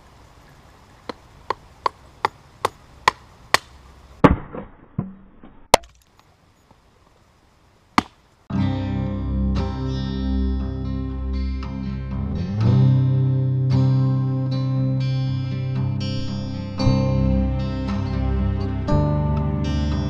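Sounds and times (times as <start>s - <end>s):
axe chopping wood: 1.8s - 6.1s, 8.0s - 8.2s.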